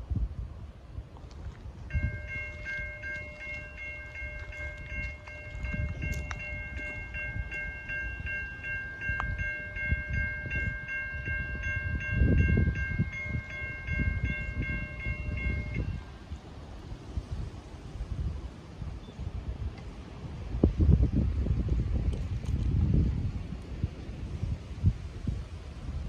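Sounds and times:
wind rumble on microphone: 0:00.0 - 0:26.0
crossing warning bell ringing: 0:01.9 - 0:16.3.

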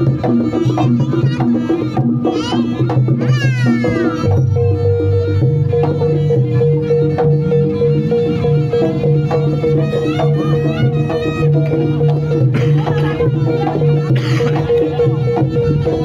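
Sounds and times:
drum strokes: 0:00.0 - 0:16.0
high wavering melody: 0:00.0 - 0:16.0
long held tone: 0:04.3 - 0:09.2.

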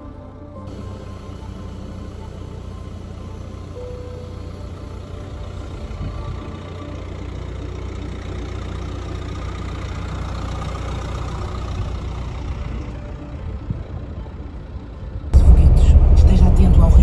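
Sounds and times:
car engine: 0:00.1 - 0:17.0.

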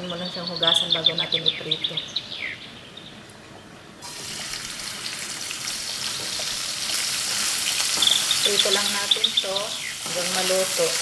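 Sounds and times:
fish sizzling in hot oil: 0:04.0 - 0:11.0.

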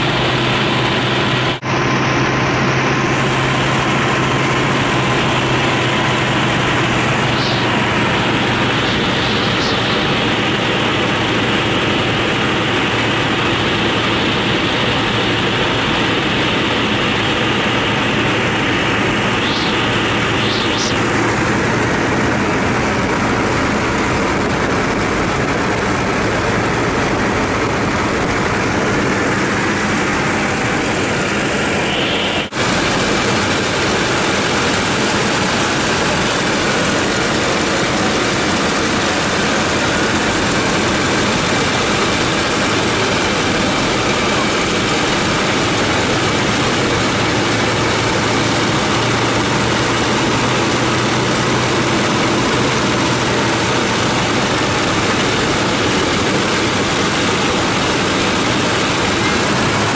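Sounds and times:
propeller aircraft engines droning: 0:00.0 - 0:59.9.

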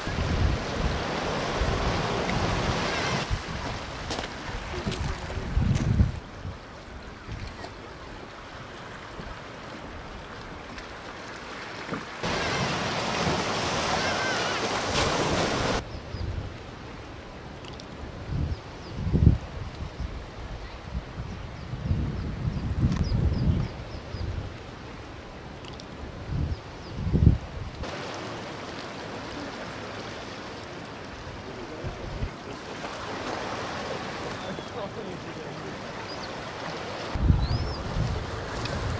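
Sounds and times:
wind gusts buffeting microphone: 0:00.0 - 0:07.6, 0:18.0 - 0:24.6, 0:26.0 - 0:28.0, 0:31.2 - 0:34.2, 0:37.1 - 0:38.9
surf washing among rocks: 0:00.0 - 0:15.8, 0:27.5 - 0:38.9.

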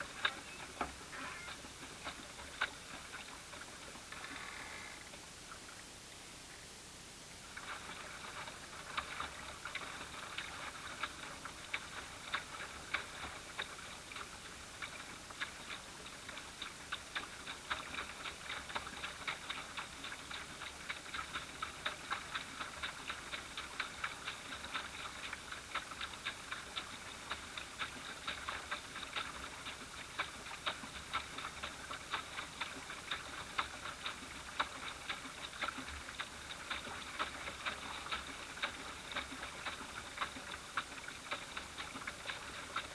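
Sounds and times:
ripples lapping against boat hull: 0:00.0 - 0:05.8, 0:07.5 - 0:42.9.

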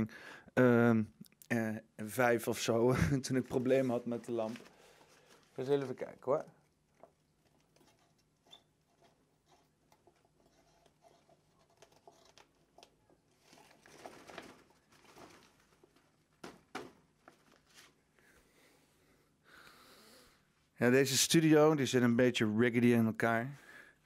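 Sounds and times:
faint rustling: 0:03.2 - 0:19.1.

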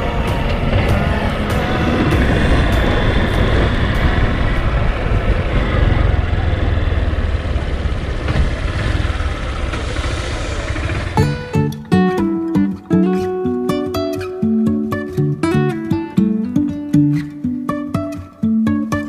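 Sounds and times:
vehicle engine rumbling: 0:00.0 - 0:12.4.

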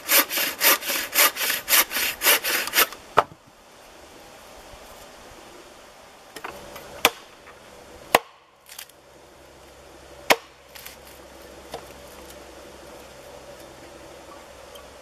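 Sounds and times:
blade chopping wood: 0:07.0 - 0:07.3, 0:08.1 - 0:08.9, 0:10.3 - 0:11.0.

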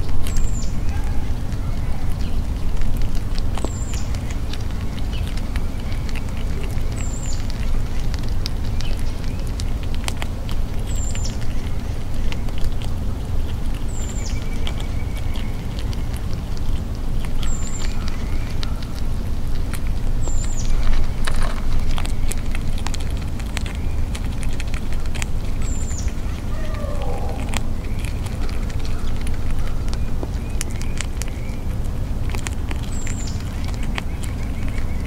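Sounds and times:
squirrel gnawing nuts: 0:00.0 - 0:35.0
low rumble: 0:22.8 - 0:32.8.

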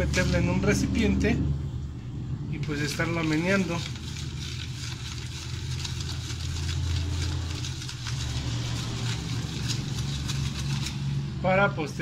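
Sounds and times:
low mechanical hum: 0:00.0 - 0:12.0
water sloshing in plastic bowl: 0:02.7 - 0:11.1.

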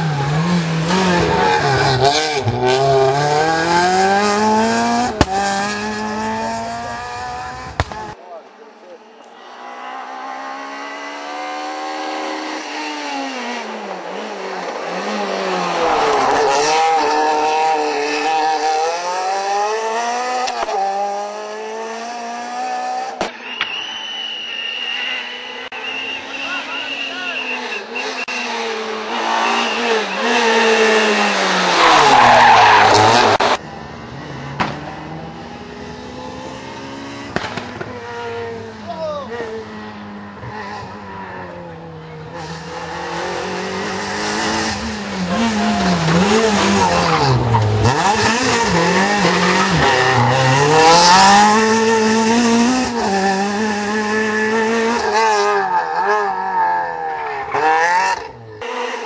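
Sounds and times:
rally car engine at full throttle: 0:00.0 - 0:08.2, 0:09.1 - 0:59.0
sharp crack: 0:37.3 - 0:38.0.

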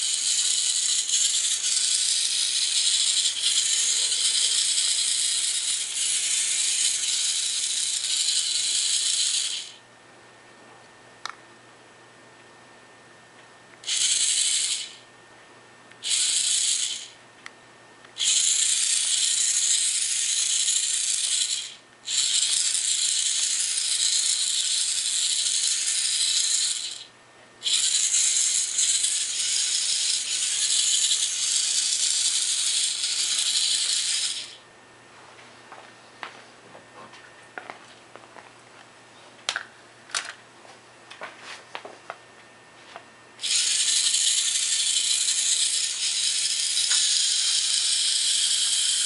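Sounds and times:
electric motors whirring: 0:00.0 - 0:09.8, 0:13.8 - 0:15.1, 0:16.0 - 0:17.2, 0:18.1 - 0:34.6, 0:43.4 - 0:49.0.

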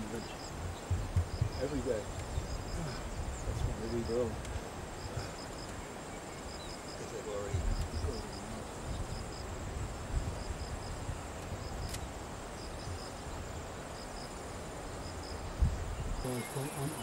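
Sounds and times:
insect chirping: 0:00.0 - 0:17.0
wind rumble on microphone: 0:00.0 - 0:17.0
low thump: 0:00.8 - 0:02.5.

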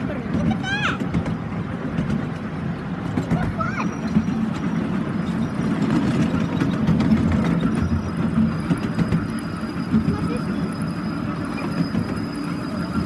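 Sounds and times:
miniature train wheels rumbling: 0:00.0 - 0:13.0.

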